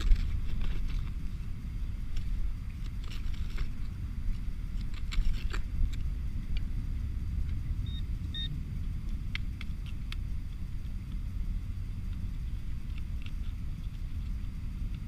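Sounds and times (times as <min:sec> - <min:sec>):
steady low rumble: 0:00.0 - 0:15.0
high electronic beeps: 0:07.8 - 0:08.5.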